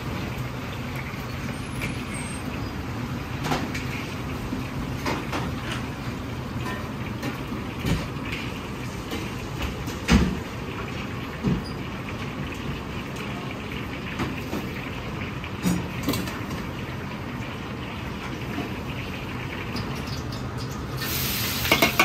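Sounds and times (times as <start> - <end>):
commercial kitchen background noise: 0.0 - 22.0
metal utensils clanking: 21.6 - 22.0.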